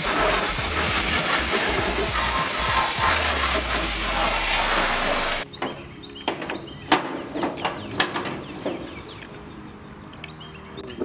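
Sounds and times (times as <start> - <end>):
pressure washer spraying water: 0.0 - 5.4
birds chirping: 5.1 - 11.0.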